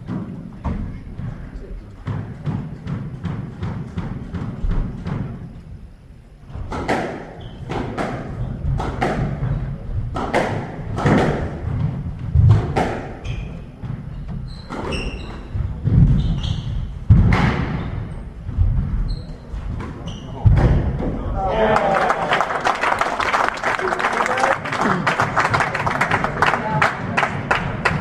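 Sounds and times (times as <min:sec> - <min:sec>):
squash ball cracking off rackets: 0:06.6 - 0:09.5, 0:10.1 - 0:13.2
shoes squeaking on wooden floor: 0:13.1 - 0:17.0, 0:17.6 - 0:20.5.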